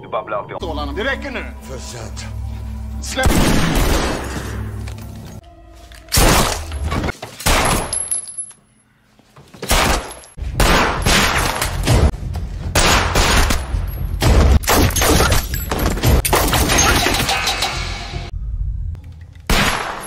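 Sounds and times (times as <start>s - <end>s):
gunshots: 3.2s - 4.4s, 9.7s - 12.1s, 12.8s - 15.3s, 19.5s - 20.0s.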